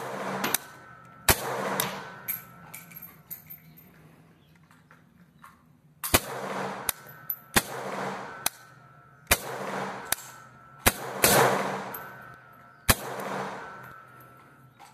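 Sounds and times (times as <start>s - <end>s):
rifle firing single shots: 0.0s - 2.7s, 6.1s - 12.3s, 12.9s - 14.2s.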